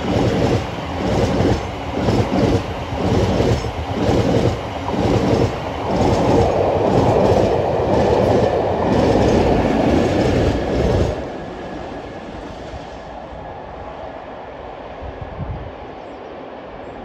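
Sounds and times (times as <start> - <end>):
train wheels clattering: 0.0 - 11.3
train rumble: 0.0 - 17.0.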